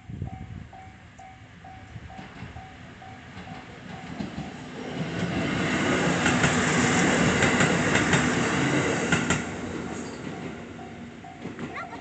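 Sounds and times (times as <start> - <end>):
level crossing warning bell: 0.0 - 4.5, 9.8 - 12.0
diesel train passing: 0.0 - 12.0.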